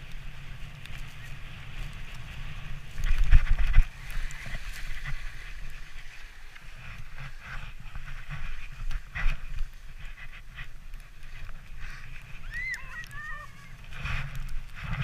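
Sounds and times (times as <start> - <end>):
sledge runners on snow: 0.0 - 15.0
wind rumble on microphone: 0.0 - 15.0.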